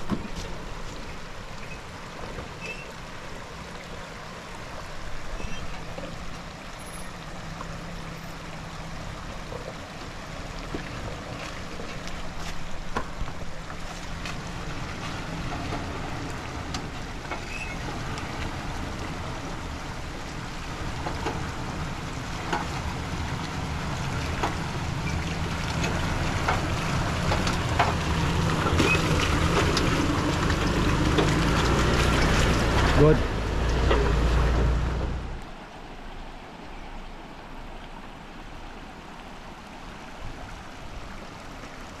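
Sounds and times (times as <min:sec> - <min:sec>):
vehicle engine drone: 0:00.0 - 0:39.7.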